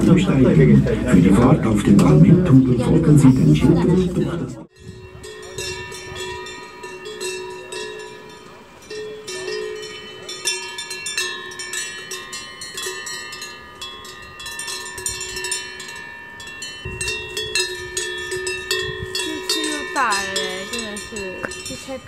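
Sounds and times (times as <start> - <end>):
cowbells clanking: 4.2 - 22.0.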